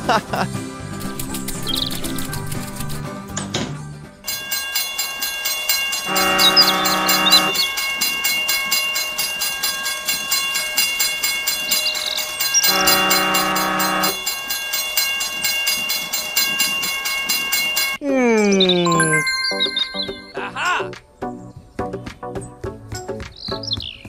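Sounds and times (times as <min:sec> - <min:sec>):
toy train chugging clatter: 0:04.3 - 0:18.0
electronic train whistle: 0:06.1 - 0:07.7, 0:12.6 - 0:14.2.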